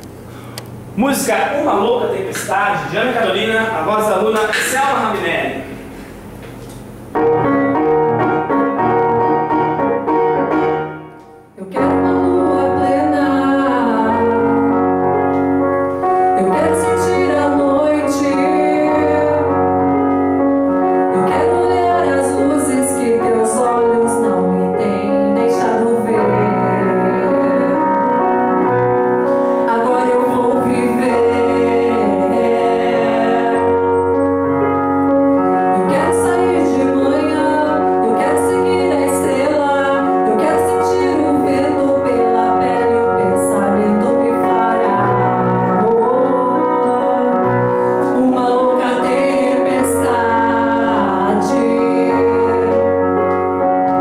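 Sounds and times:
piano accompaniment: 0.0 - 54.0
woman singing a ballad: 11.6 - 15.0, 16.3 - 19.8, 21.1 - 28.3, 29.5 - 34.2, 35.7 - 53.2.

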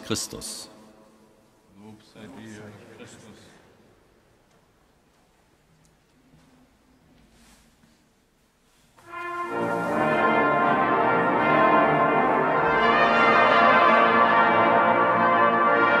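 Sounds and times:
instrumental music sustained chord: 9.1 - 16.0.

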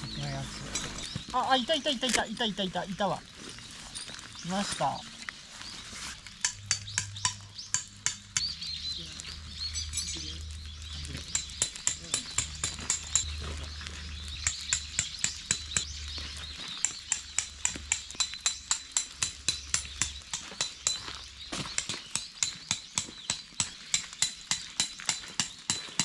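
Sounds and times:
tent pegs hammered into gravel: 3.9 - 8.7, 11.0 - 26.0.

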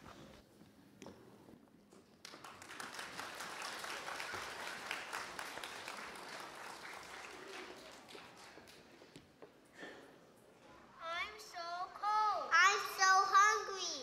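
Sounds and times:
audience applauding: 2.2 - 9.1.

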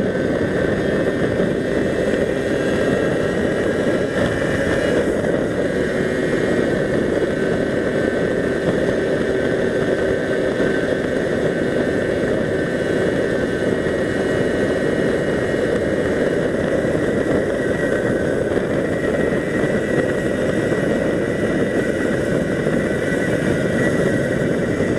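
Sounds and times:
wind and road noise: 0.0 - 24.9.

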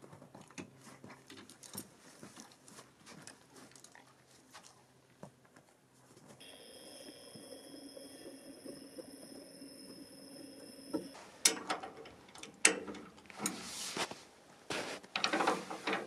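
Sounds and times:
faint steady hum: 6.4 - 16.0.

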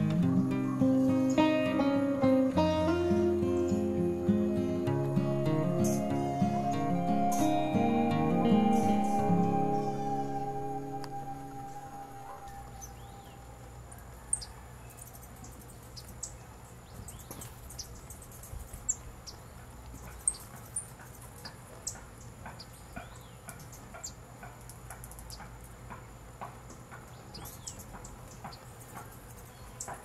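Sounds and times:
birds chirping: 0.0 - 24.2, 26.7 - 30.0
soft low clicking notes: 4.9 - 13.0.

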